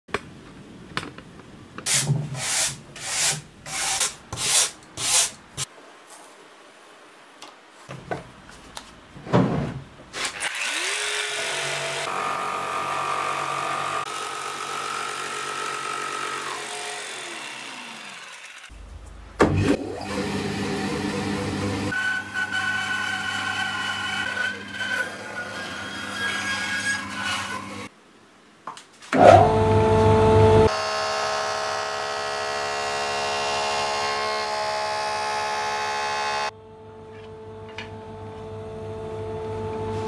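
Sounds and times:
power tool motor running: 0:30.4 - 0:36.5.

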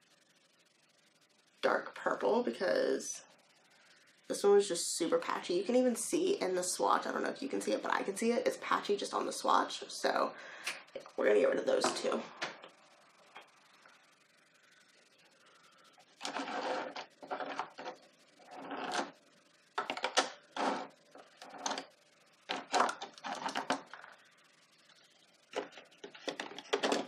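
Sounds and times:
plastic tubes clicking and clattering: 0:19.8 - 0:24.2, 0:25.5 - 0:27.0.

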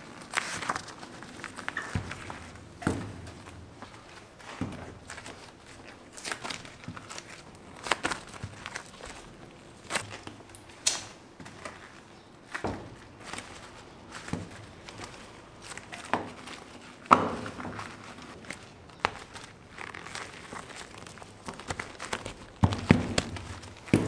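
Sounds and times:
candy thumping and slapping: 0:00.2 - 0:11.8, 0:12.5 - 0:24.0.

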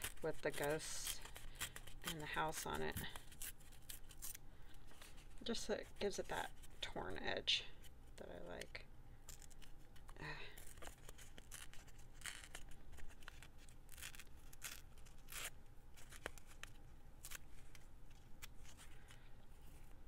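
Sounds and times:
paper tearing: 0:00.0 - 0:04.4, 0:09.3 - 0:17.4
scissors cutting paper: 0:00.0 - 0:04.4.

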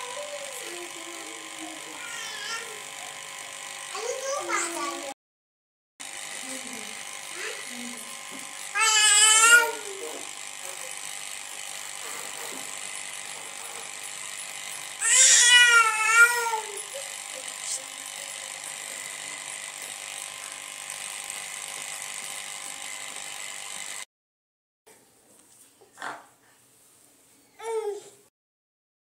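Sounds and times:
high-pitched wavering cry: 0:15.0 - 0:17.9.

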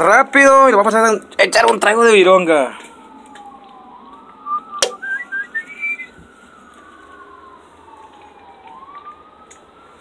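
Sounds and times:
emergency siren wailing: 0:00.0 - 0:10.0
sharp click: 0:04.8 - 0:05.0.

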